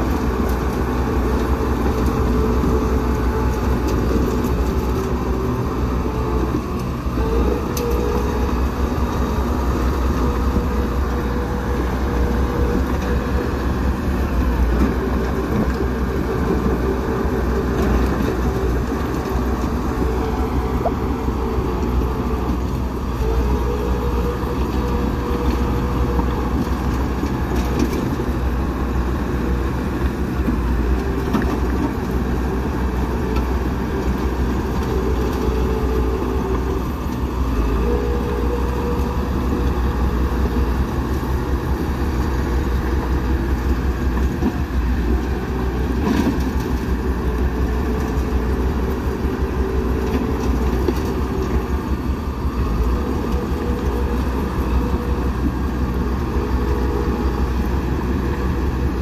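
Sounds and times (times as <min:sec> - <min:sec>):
bulldozer diesel engine: 0:00.0 - 0:59.0.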